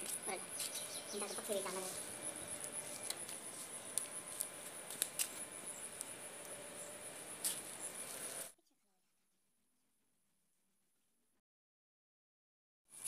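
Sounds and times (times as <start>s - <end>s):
cricket chirring: 0.0s - 8.6s.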